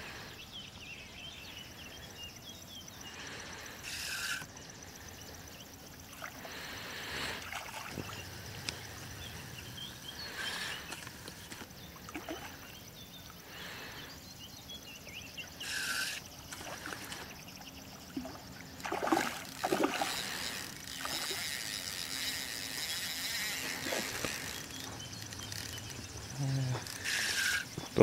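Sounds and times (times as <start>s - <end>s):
fish splashing in water: 18.2s - 21.7s.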